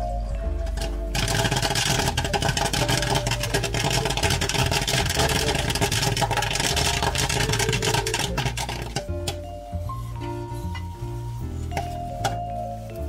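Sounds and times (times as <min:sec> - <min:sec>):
popcorn popping: 0:00.6 - 0:09.6, 0:11.7 - 0:12.5.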